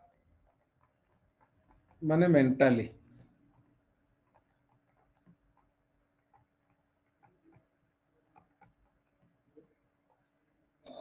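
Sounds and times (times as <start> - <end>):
faint clicks: 3.0 - 9.7.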